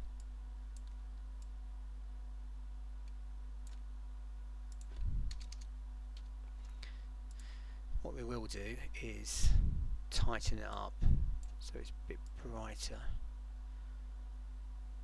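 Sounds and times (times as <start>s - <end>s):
low electrical hum: 0.0s - 15.0s
computer keyboard keystrokes: 0.2s - 1.5s, 4.7s - 6.7s.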